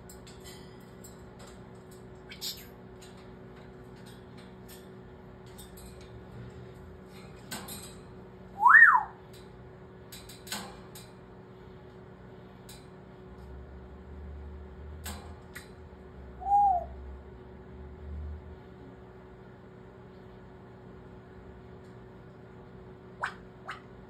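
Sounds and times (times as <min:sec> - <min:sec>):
parrot whistling: 0:08.6 - 0:09.2, 0:16.4 - 0:16.9.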